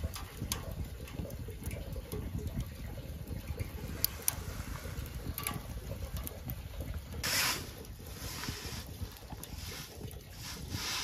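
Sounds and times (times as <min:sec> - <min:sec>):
fire crackling: 0:00.0 - 0:11.0
wind rumble on microphone: 0:00.0 - 0:11.0
fire hissing rush: 0:07.2 - 0:11.0.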